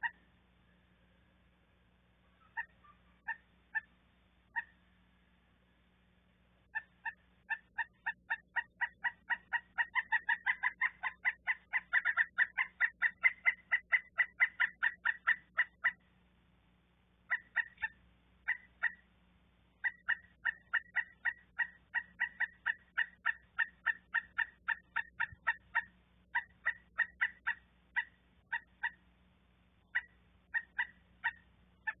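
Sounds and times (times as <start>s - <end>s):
woodpecker calling: 2.2s - 4.8s, 6.7s - 16.1s, 17.2s - 19.1s, 19.8s - 29.1s, 29.8s - 32.0s.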